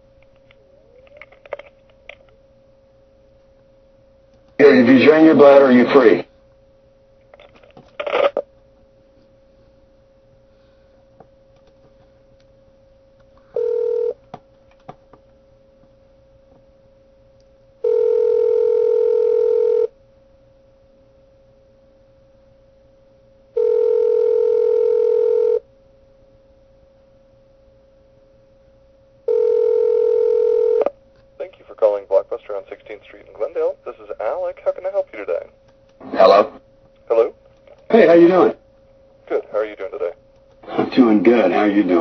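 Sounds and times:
telephone ringback tone: 13.6 - 14.2, 17.8 - 19.9, 23.6 - 25.6, 29.3 - 30.9.

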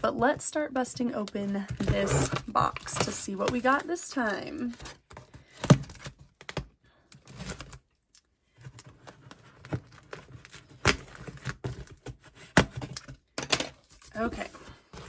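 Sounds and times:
cardboard being handled: 1.3 - 6.4, 13.8 - 15.0.

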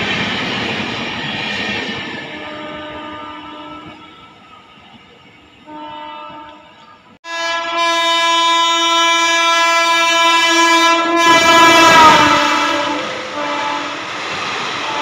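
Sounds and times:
train rumble: 0.0 - 7.4, 10.1 - 15.0
locomotive air horn blast: 2.3 - 4.0, 5.7 - 14.1, 14.8 - 15.0.

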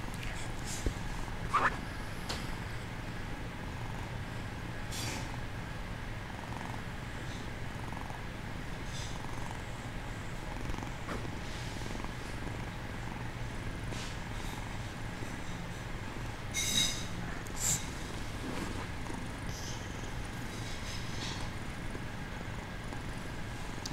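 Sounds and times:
kitten purring: 6.3 - 23.9.

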